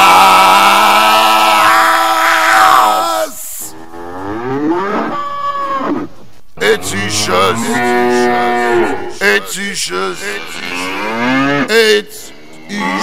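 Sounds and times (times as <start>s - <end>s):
bull mooing: 3.8s - 9.2s, 10.0s - 13.0s.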